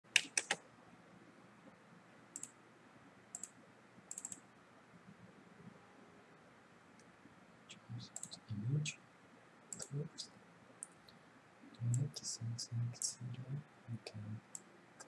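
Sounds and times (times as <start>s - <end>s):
computer mouse clicking: 0.1s - 0.6s, 2.4s - 2.6s, 3.3s - 4.4s, 9.7s - 9.9s.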